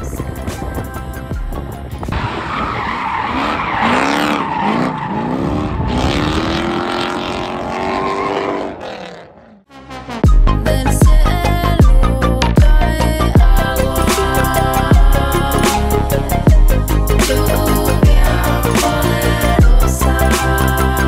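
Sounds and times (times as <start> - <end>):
tyres skidding: 0.3 - 10.5
car engine revving: 2.0 - 10.6.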